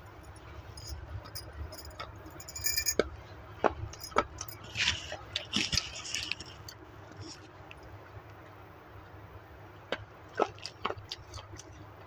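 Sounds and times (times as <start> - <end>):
gritty crunching chewing: 10.3 - 11.8.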